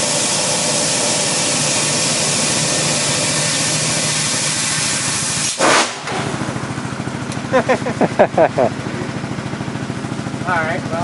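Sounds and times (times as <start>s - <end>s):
loud hiss of air: 0.0s - 6.3s
gasoline engine running: 0.0s - 11.0s
air cannon firing blast: 5.4s - 6.4s.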